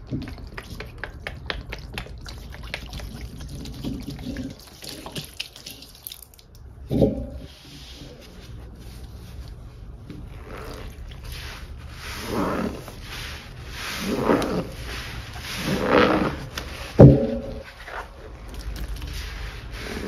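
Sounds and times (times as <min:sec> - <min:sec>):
drips and splashes: 0:00.0 - 0:06.8, 0:18.4 - 0:19.4
thump of sponges in bowl: 0:16.0 - 0:17.7.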